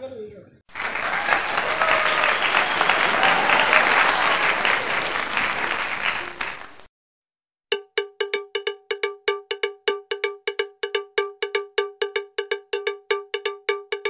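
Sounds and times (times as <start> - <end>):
crowd applause: 0.7 - 6.9.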